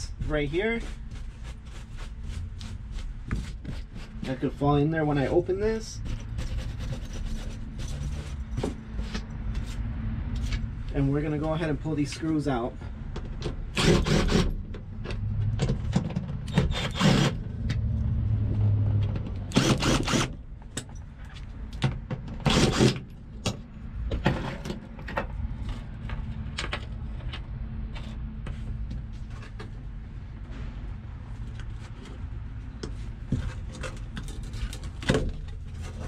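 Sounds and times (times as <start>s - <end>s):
power driver whirring: 19.5s - 20.4s.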